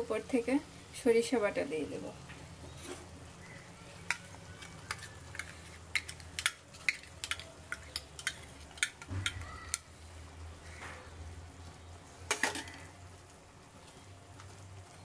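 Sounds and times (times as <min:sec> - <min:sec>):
metal spoon scraping steel bowl: 0:04.6 - 0:09.4.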